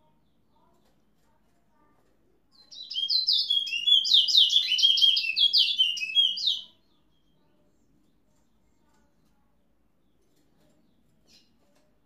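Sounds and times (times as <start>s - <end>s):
finch singing whistled notes: 2.6s - 6.7s.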